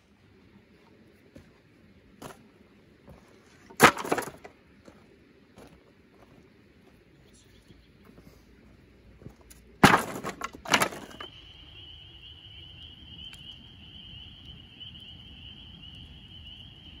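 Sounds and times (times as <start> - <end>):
wood boards clattering: 3.7 - 4.5, 9.8 - 11.3.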